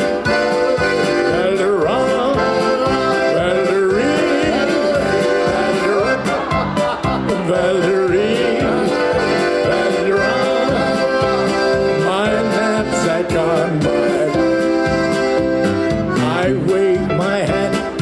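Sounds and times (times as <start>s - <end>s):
accordion: 0.0s - 18.0s
keyboards: 0.0s - 18.0s.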